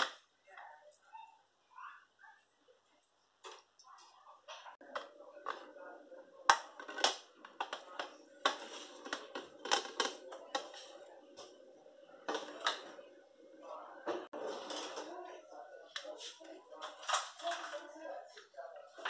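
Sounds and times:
plastic plates clattering: 6.4 - 11.6, 12.2 - 13.0.

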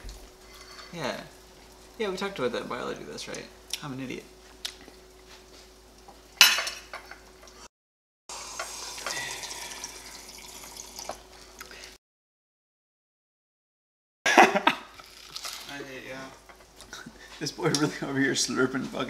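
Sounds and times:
dishes and cutlery clattering: 6.4 - 7.2.

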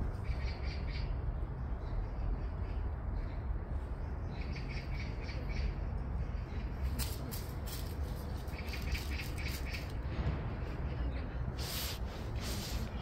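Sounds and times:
dry leaves crackling: 6.7 - 10.1, 11.6 - 13.0.

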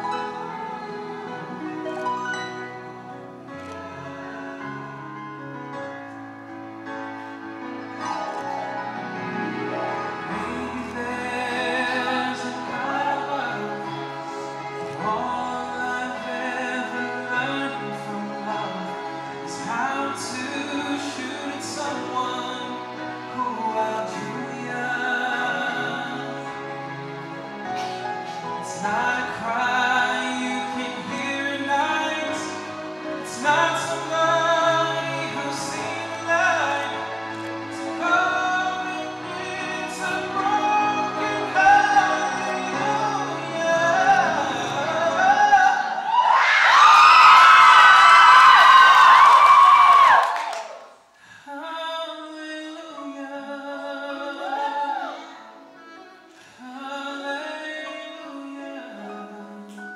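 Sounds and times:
instrumental accompaniment: 0.0 - 48.5
man singing: 8.0 - 27.1, 28.2 - 46.4, 51.2 - 55.6, 56.4 - 59.9.

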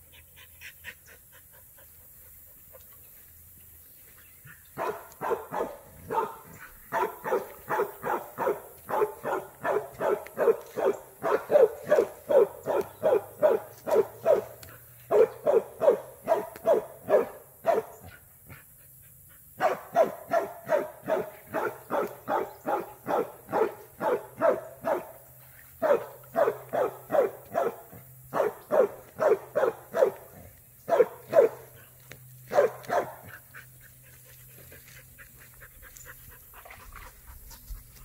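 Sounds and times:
dog barking rapidly: 4.8 - 18.2, 19.6 - 25.2, 25.8 - 31.8, 32.5 - 33.4.

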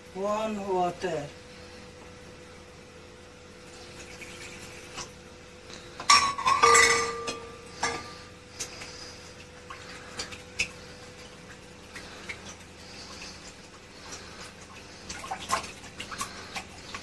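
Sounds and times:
glass kitchenware clinking: 6.1 - 8.0.

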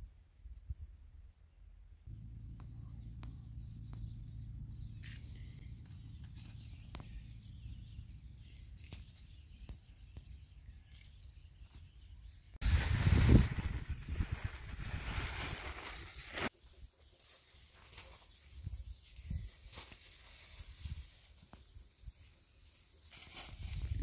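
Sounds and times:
faint bird chirps: 2.1 - 12.6
wind rumble on microphone: 12.6 - 16.4, 23.4 - 24.0.

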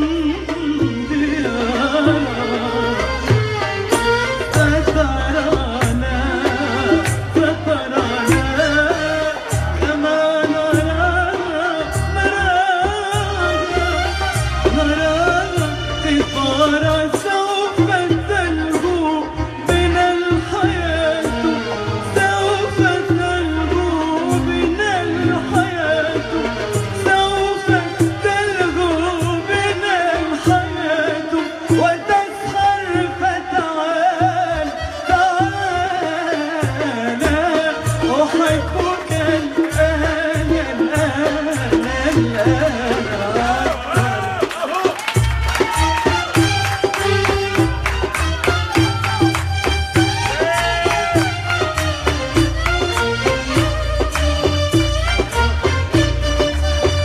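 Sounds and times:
band with pulsing bass beat: 0.0 - 33.6, 34.2 - 57.0
instrumental accompaniment: 0.0 - 57.0.

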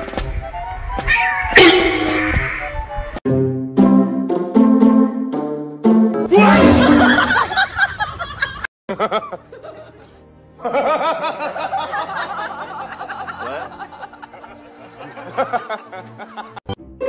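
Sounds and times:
woman laughing: 6.7 - 10.0
light background music: 9.0 - 17.0.

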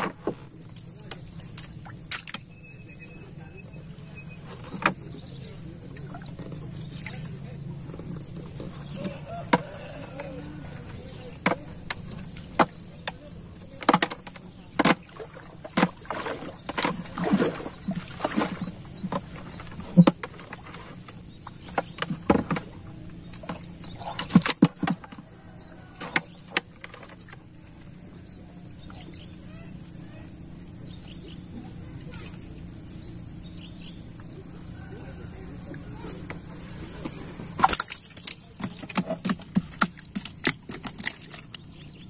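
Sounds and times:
water splashing and dripping: 0.8 - 2.5, 37.1 - 42.0.

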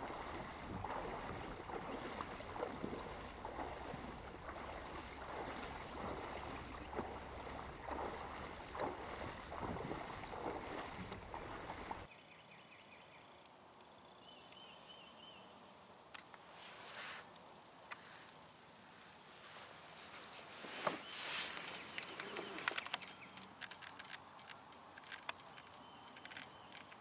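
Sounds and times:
river water splashing: 0.0 - 12.1, 19.2 - 27.0
wind rumble on microphone: 0.0 - 12.1.

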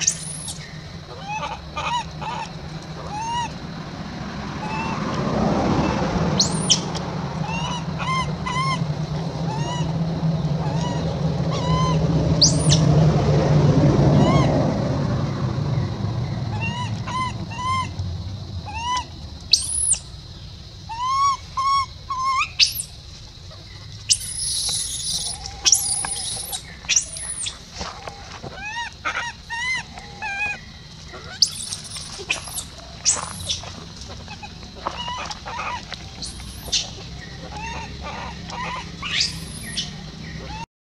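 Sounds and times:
infant monkey crying: 0.0 - 3.6, 4.6 - 5.1, 5.8 - 12.8, 14.1 - 14.7, 16.5 - 18.0, 18.6 - 20.0, 20.9 - 22.9, 23.5 - 40.7
low steady rumble: 0.0 - 40.6
shrill squeals: 24.1 - 27.6.

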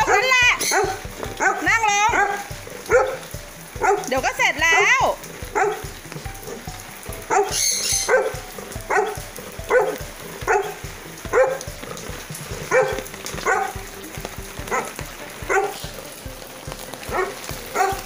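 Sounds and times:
dog barking: 0.0 - 4.2, 5.5 - 6.6, 7.2 - 11.7, 12.6 - 13.9, 14.6 - 16.0, 17.1 - 18.0.

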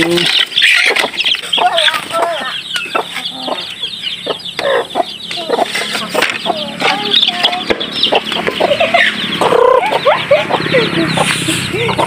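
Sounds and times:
chicks peeping: 0.0 - 12.0
hens clucking: 0.0 - 12.0.

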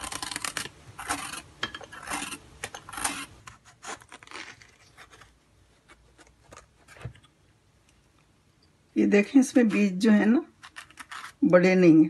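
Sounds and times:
blade scraping gourd skin: 0.0 - 7.1, 9.4 - 11.5.

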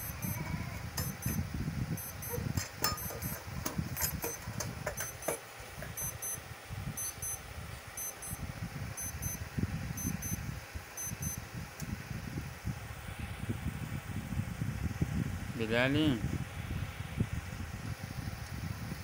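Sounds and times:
electronic double beeps: 0.0 - 0.4, 2.0 - 2.4, 6.0 - 6.4, 7.0 - 7.4, 8.0 - 8.4, 9.0 - 9.4, 10.0 - 10.4, 11.0 - 11.4.

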